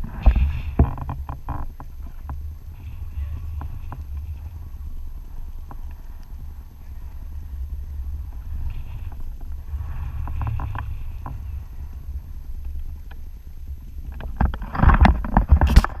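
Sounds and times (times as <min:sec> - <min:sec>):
knocks and scraping: 0:00.0 - 0:04.8, 0:07.5 - 0:13.2, 0:14.0 - 0:16.0
wind buffeting microphone: 0:00.0 - 0:16.0.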